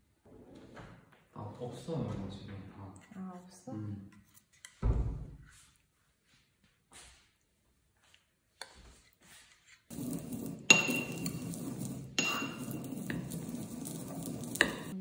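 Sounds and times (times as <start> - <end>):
fork scraping ceramic bowl: 9.5 - 15.0.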